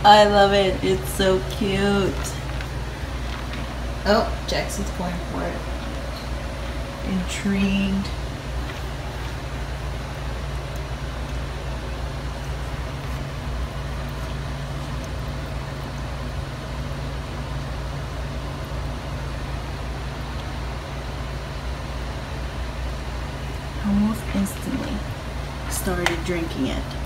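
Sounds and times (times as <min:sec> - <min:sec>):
small pump humming: 0:00.0 - 0:27.0
water bubbling and splashing: 0:08.1 - 0:23.8.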